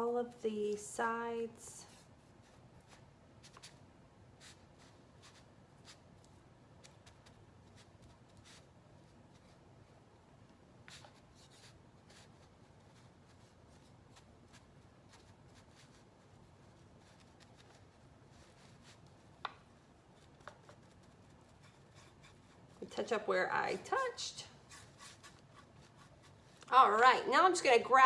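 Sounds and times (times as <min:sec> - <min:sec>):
paintbrush strokes on wood: 0:01.8 - 0:03.8, 0:10.9 - 0:26.6.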